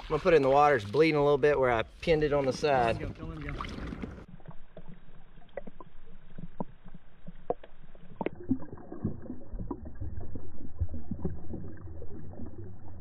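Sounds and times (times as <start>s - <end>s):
muffled underwater water movement: 0.0s - 13.0s
underwater clicks and knocks: 2.4s - 10.2s.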